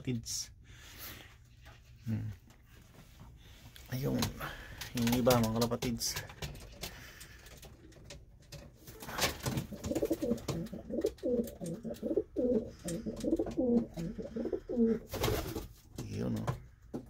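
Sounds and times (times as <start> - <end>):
pigeon cooing: 9.6 - 15.2.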